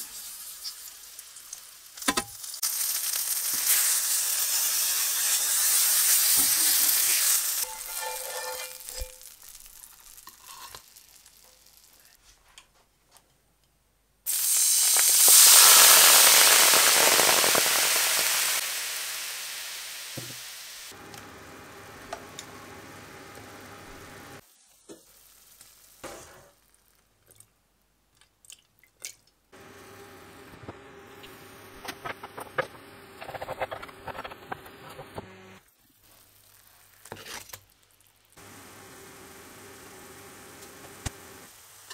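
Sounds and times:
liquid hissing in hot pan: 0.0 - 12.1, 14.3 - 21.0, 36.0 - 41.9
chicken sizzling in a pan: 0.0 - 12.2, 14.3 - 27.1, 35.7 - 41.9.

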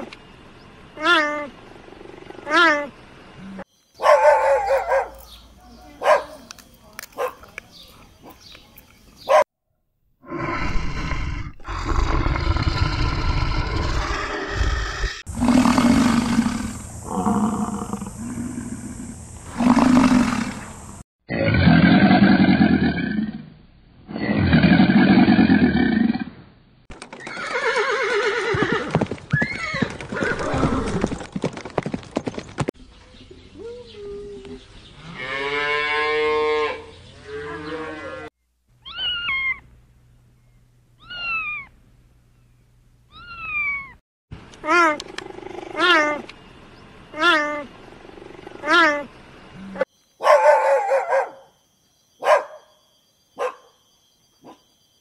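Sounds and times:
bear growling and roaring: 10.2 - 26.4, 45.0 - 46.2, 47.9 - 49.9
horse whinnying: 27.2 - 31.2
cheetah chirping: 38.8 - 39.6.

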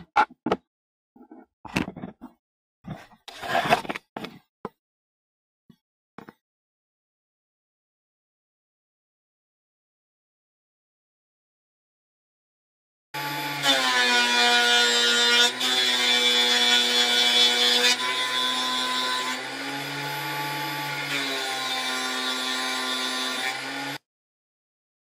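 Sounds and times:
router bit cutting wood: 13.2 - 24.0.

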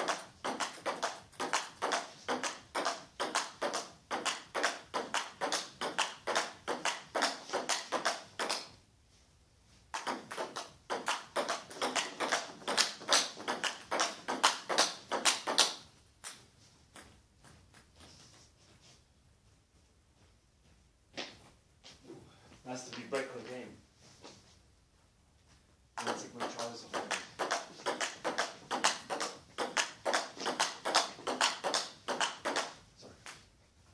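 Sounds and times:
table tennis ball clicking: 0.0 - 8.7, 10.0 - 16.4, 26.0 - 32.8.

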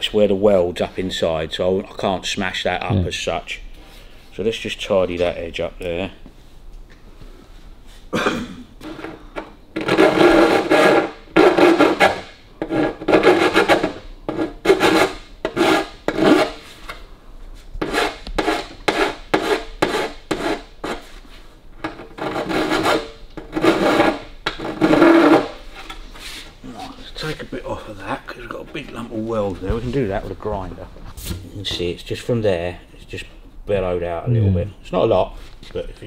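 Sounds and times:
metal file rasping on sheet metal: 9.8 - 16.6, 17.8 - 21.1, 21.9 - 25.9.

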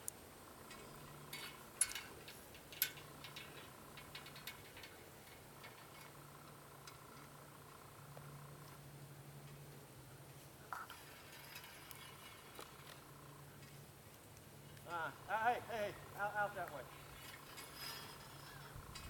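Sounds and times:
sharp light clicks and ticks: 0.0 - 9.7, 10.7 - 14.9
faint steady low hum: 0.0 - 19.0.

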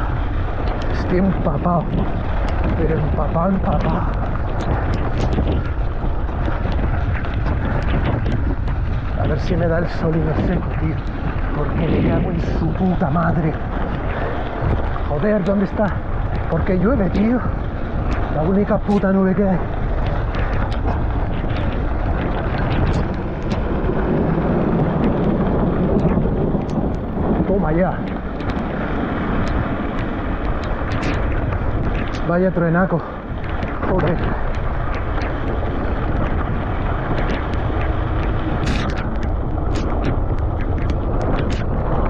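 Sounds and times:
rain taps: 0.0 - 42.0
wind buffeting microphone: 0.0 - 42.0
sharp ticks: 0.6 - 24.4, 25.0 - 27.4, 28.0 - 42.0.

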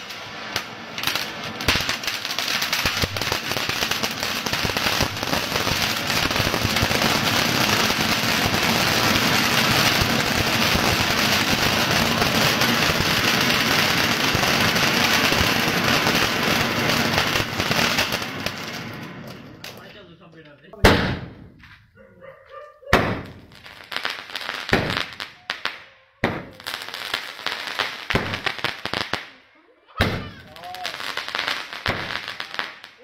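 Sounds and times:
firework fountain hissing and crackling: 0.0 - 19.9, 23.2 - 29.4, 30.0 - 33.0.

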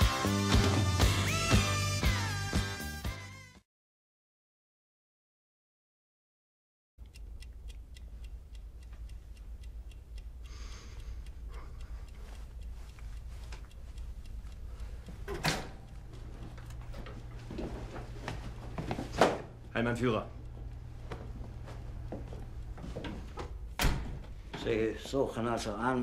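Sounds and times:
clock ticking: 7.0 - 18.9, 19.6 - 23.8
low room hum: 7.0 - 26.0.

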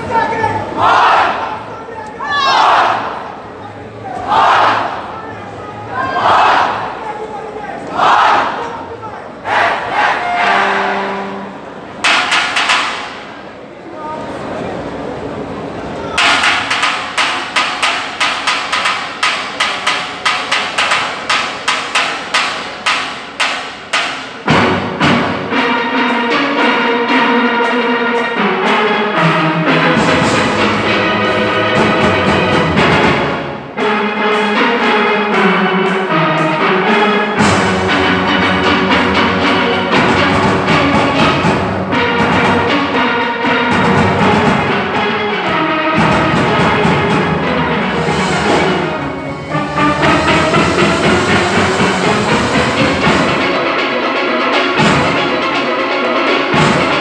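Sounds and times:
steel orchestra playing: 8.8 - 57.0
percussion: 12.0 - 13.5, 15.9 - 57.0.

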